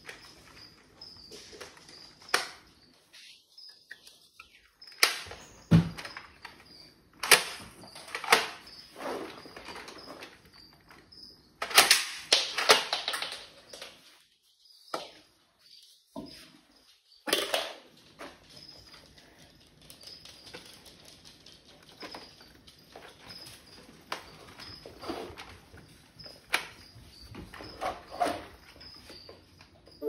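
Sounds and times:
plastic toy clicks and knocks: 7.2s - 8.6s, 11.6s - 13.9s
faint high chirp: 21.9s - 30.0s.

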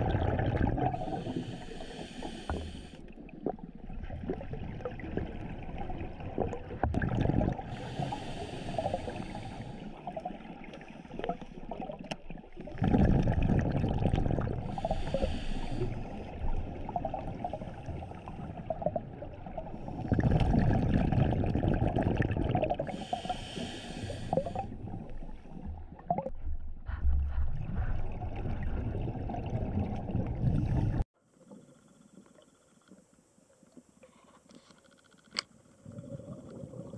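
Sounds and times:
exhaust bubbles rushing: 0.0s - 1.1s, 6.4s - 7.7s, 12.7s - 14.7s, 20.0s - 22.9s
regulator inhale hiss: 1.0s - 3.1s, 7.7s - 10.0s, 14.7s - 16.4s, 22.9s - 24.7s.

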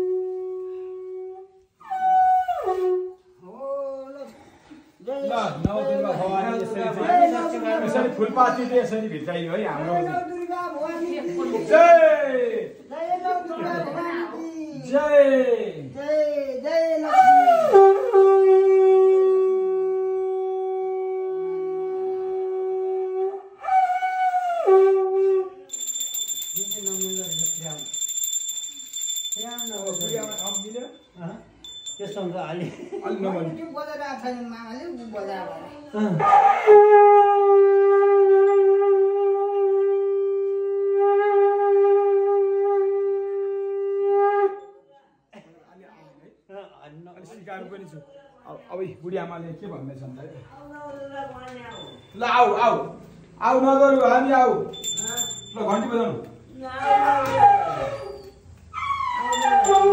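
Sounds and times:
conch shell blown: 0.0s - 1.7s, 17.8s - 25.5s, 37.4s - 44.6s
high steady ringing tone: 25.7s - 32.6s, 51.7s - 52.6s, 54.6s - 56.2s, 59.1s - 59.9s.

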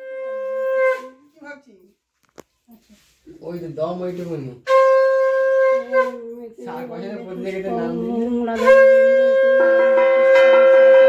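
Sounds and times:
conch shell blasts: 0.0s - 1.4s, 4.6s - 6.5s, 8.4s - 11.0s.

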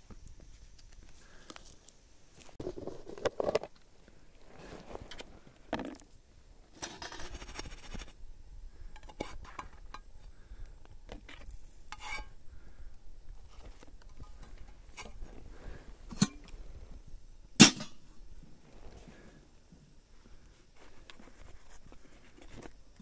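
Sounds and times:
cookware clinking and scraping: 12.0s - 12.3s.

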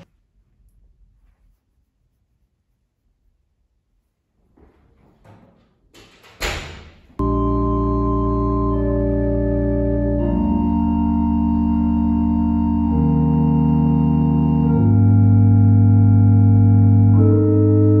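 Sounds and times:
soft rustles: 0.0s - 5.3s
sustained organ chords: 7.2s - 18.0s.

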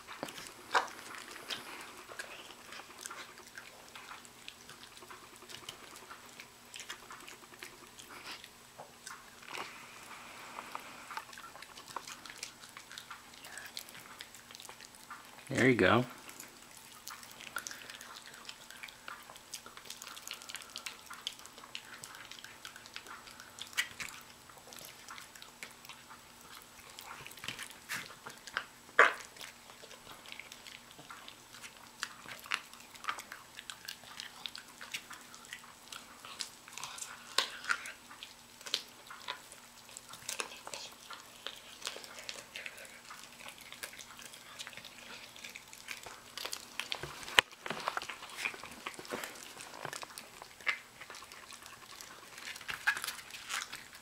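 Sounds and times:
dog chewing raw meat: 0.0s - 54.0s
teeth clicking: 10.6s - 15.6s, 16.2s - 54.0s.

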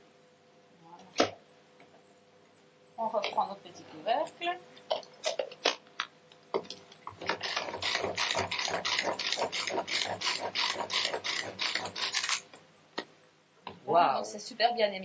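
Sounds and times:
pull-cord chopper ratcheting whir: 7.3s - 12.5s.

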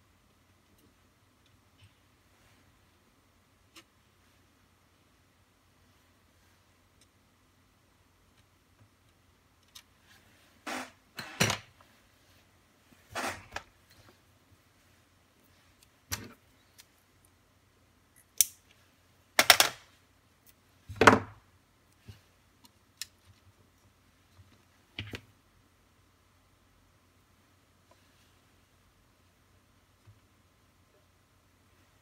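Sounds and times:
light clicks and taps of tools: 6.9s - 7.2s, 8.3s - 9.9s, 21.9s - 25.3s.

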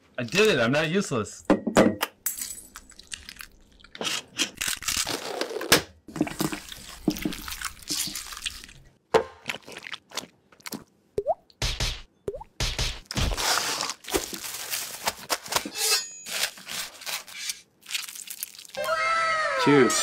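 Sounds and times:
wet squelching of mashed food: 6.1s - 11.0s, 17.8s - 18.8s.

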